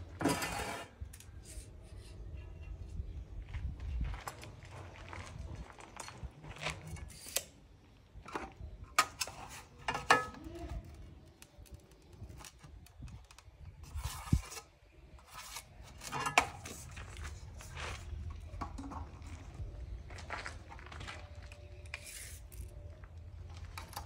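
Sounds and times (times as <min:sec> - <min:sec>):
tiles scraping: 0:00.2 - 0:01.6.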